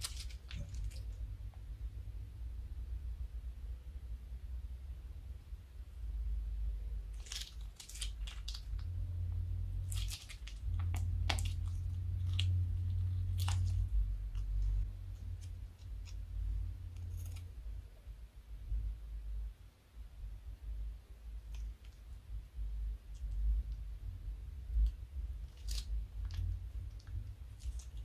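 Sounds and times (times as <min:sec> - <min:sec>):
slime crackling and popping: 0:00.0 - 0:01.2, 0:07.1 - 0:09.0, 0:09.8 - 0:16.2, 0:24.8 - 0:28.0.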